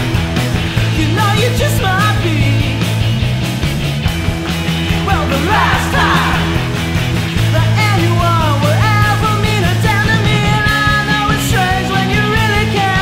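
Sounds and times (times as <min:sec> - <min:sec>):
indie rock song: 0:00.0 - 0:13.0.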